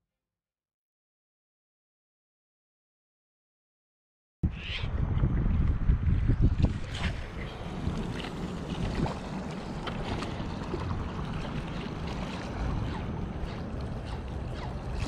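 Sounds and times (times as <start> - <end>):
wind buffeting microphone: 4.4 - 15.0
small waves lapping at shore: 6.7 - 15.0.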